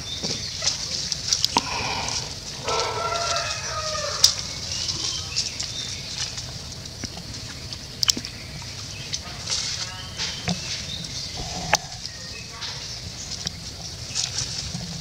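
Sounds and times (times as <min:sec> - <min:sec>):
dry leaves rustling: 0:00.0 - 0:15.0
steady high hiss: 0:01.2 - 0:06.8
wavering animal call: 0:01.6 - 0:05.5.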